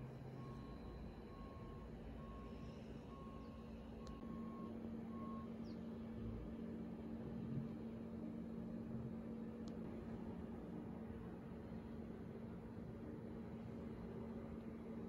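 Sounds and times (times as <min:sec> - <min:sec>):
low steady hum: 0:00.0 - 0:15.0
reversing alarm beeping: 0:00.3 - 0:05.6.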